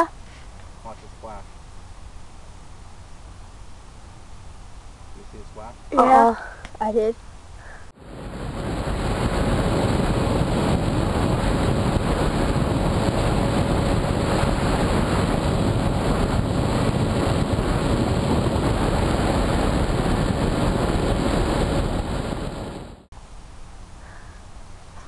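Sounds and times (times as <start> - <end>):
wind rush over microphone: 7.6 - 23.1
electric motor and propeller hum: 8.0 - 23.1.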